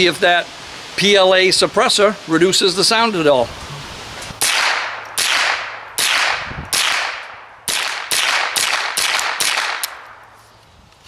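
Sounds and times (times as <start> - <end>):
suppressed rifle shots: 4.4 - 10.2.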